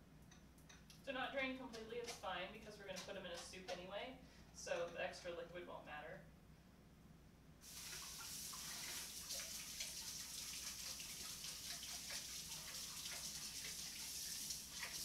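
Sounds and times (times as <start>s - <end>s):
faucet running into sink: 7.6s - 15.0s.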